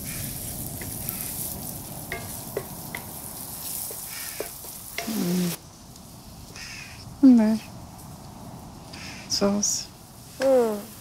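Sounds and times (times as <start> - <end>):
garlic sizzling in hot oil: 0.0 - 5.6.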